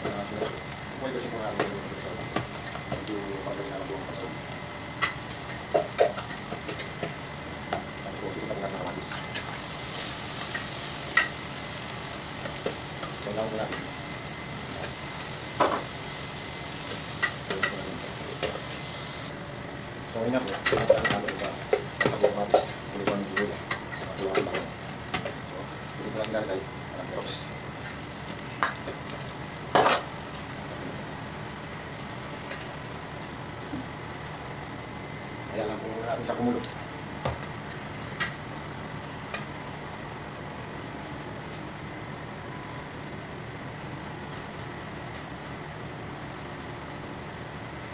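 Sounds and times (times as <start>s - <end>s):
onion sizzling in butter: 0.0s - 33.2s.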